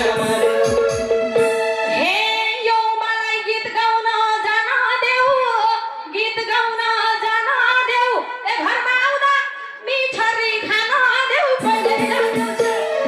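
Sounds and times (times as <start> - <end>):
woman singing into microphone: 0.0 - 1.0, 1.8 - 13.0
low drum beat: 0.0 - 1.6.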